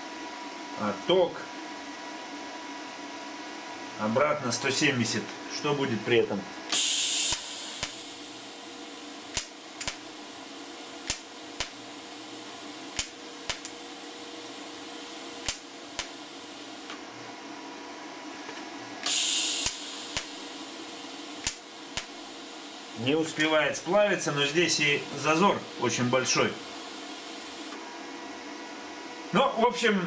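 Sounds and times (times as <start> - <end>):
short loud hiss: 6.7 - 8.0, 19.0 - 20.0
welder arc pulse clicks: 6.7 - 8.5, 9.3 - 10.1, 11.0 - 11.9, 12.9 - 13.8, 15.4 - 17.0, 19.0 - 22.2, 23.0 - 23.7
welder humming: 6.7 - 17.0, 19.0 - 27.8.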